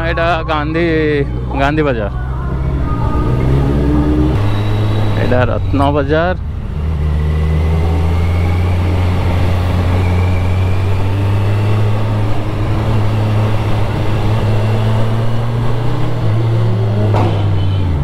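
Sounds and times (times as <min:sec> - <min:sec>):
motorcycle engine running: 0:00.0 - 0:16.5
road and wind noise: 0:00.0 - 0:18.0.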